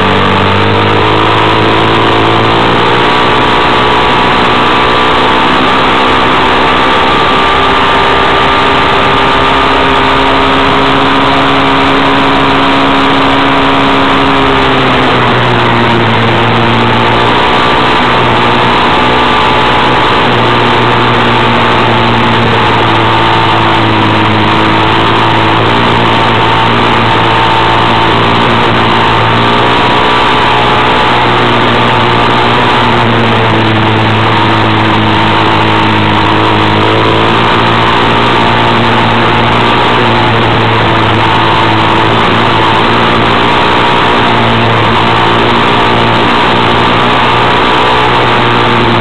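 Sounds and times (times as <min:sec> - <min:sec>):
tyres on gravel road: 0:00.0 - 0:49.0
vehicle engine running: 0:00.0 - 0:49.0.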